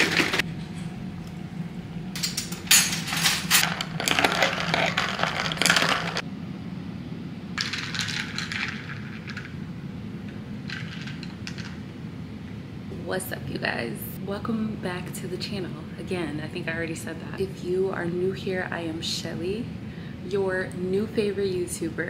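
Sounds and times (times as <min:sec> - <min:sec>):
metal cutlery clattering in drawer: 0:02.2 - 0:06.2.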